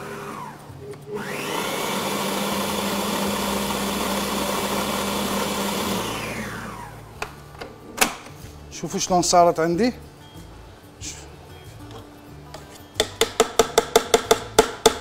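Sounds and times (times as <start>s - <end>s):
stand mixer motor whining: 0.0s - 0.6s, 1.2s - 7.0s.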